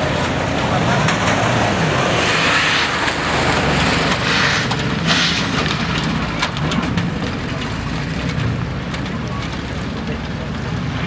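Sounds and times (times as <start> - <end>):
rushing noise: 0.0 - 8.5
off-road engines running: 0.0 - 11.0.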